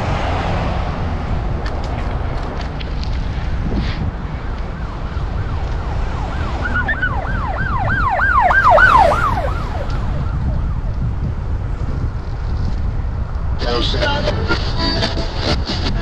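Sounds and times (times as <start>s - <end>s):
wind rumble on microphone: 0.0s - 16.0s
emergency siren yelping: 4.3s - 11.1s.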